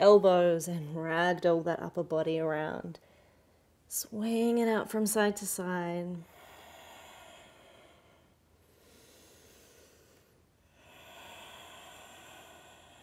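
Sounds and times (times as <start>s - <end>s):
woman breathing slowly: 3.0s - 3.8s, 6.2s - 13.0s.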